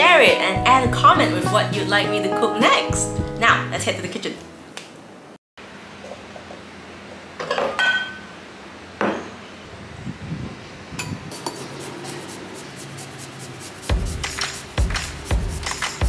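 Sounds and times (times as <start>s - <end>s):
ginger scraped on a rasp grater: 11.3s - 14.8s.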